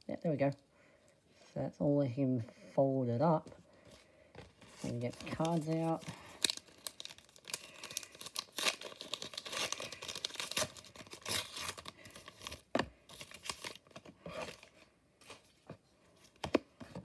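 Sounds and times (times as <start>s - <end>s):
packaging crinkling and tearing: 4.6s - 14.8s.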